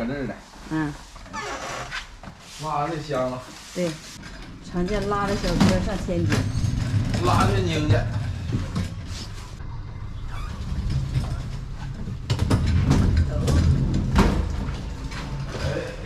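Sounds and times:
elevator hum: 0:04.2 - 0:15.6
elevator doors sliding open: 0:04.2 - 0:16.0.

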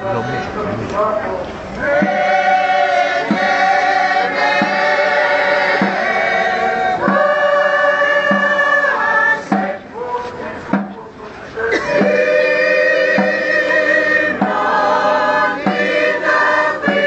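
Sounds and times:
choir singing a hymn: 0:00.0 - 0:17.0
soft low beat: 0:11.8 - 0:17.0.

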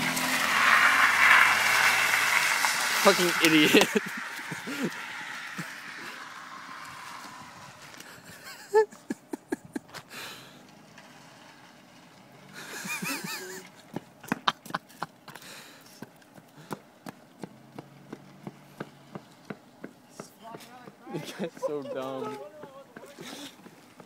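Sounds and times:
person laughing: 0:03.6 - 0:05.7, 0:08.2 - 0:10.0, 0:12.6 - 0:13.7
footsteps on asphalt: 0:13.6 - 0:24.0.

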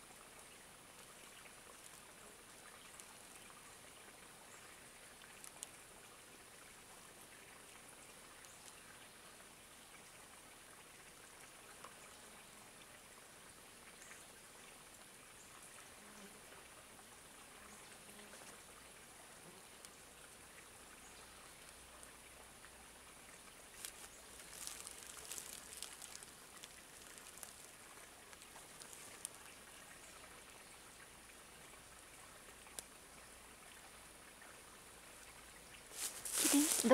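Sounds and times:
soft steady hiss: 0:00.0 - 0:36.9
small crackling ticks: 0:00.9 - 0:03.6, 0:05.1 - 0:05.9, 0:08.0 - 0:08.9, 0:19.6 - 0:20.0, 0:20.8 - 0:22.2, 0:23.7 - 0:30.4, 0:32.4 - 0:33.0.

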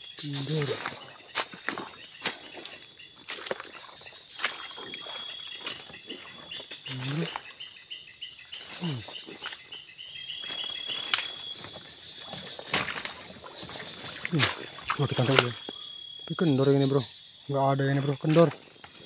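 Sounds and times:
crickets trilling: 0:00.0 - 0:19.0
pulsing insect call: 0:00.0 - 0:19.0
twigs and brush clicking: 0:00.2 - 0:07.6, 0:10.4 - 0:15.8, 0:18.0 - 0:19.0.

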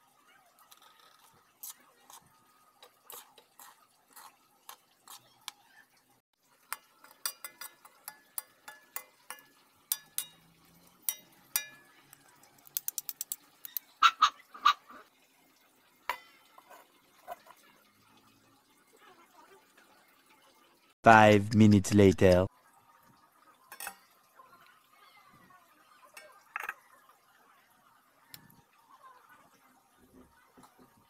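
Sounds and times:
metal spoon scraping a wok: 0:00.7 - 0:05.6.

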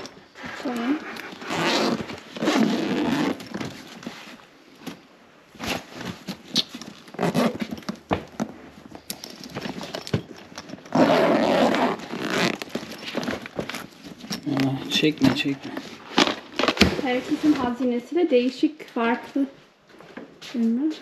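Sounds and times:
bag zipper pulled: 0:00.0 - 0:03.6, 0:06.6 - 0:07.7, 0:10.8 - 0:13.1
bag contents rustling: 0:00.0 - 0:17.8.

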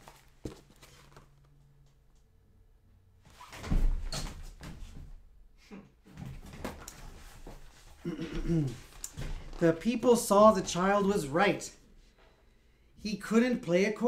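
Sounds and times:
book handling thumps and rustles: 0:00.0 - 0:01.4.

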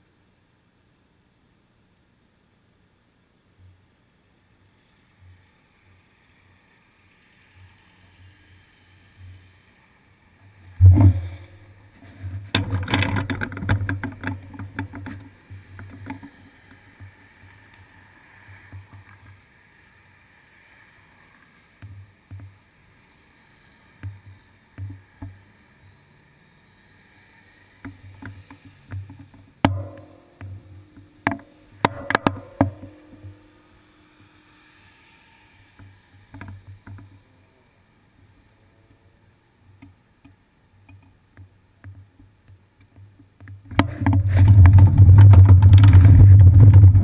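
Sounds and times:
road traffic passing: 0:04.3 - 0:40.8
rattling clatter: 0:43.8 - 0:47.0.

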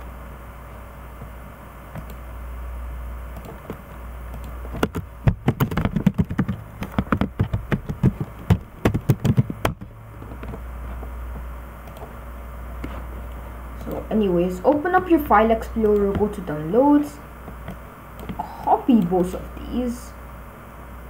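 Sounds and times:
low steady hum: 0:00.0 - 0:21.0
computer keyboard typing: 0:03.4 - 0:10.6, 0:11.8 - 0:12.2, 0:14.7 - 0:16.7, 0:17.4 - 0:19.4.

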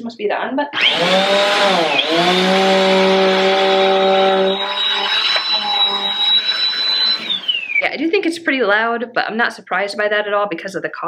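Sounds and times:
vacuum cleaner running: 0:00.8 - 0:07.9.

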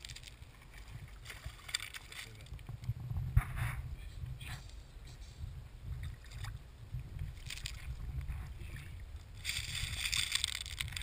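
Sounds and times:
wind rumble on microphone: 0:02.2 - 0:11.0.

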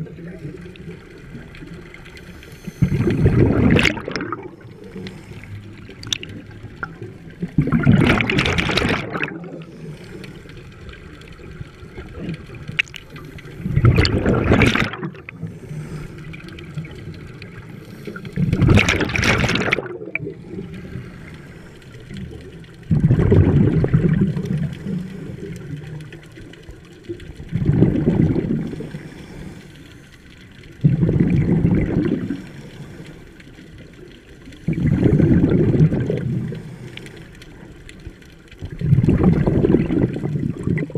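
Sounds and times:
exhaled bubbles gurgling: 0:00.0 - 0:40.9
diver breathing through regulator: 0:02.2 - 0:06.0, 0:15.4 - 0:16.6, 0:28.6 - 0:30.2, 0:32.1 - 0:33.6, 0:34.6 - 0:37.6.

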